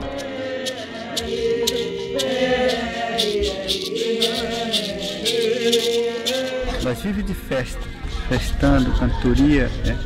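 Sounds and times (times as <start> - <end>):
voices singing long held notes: 0.0 - 10.0
rattle shaken in steady beat: 0.1 - 6.6.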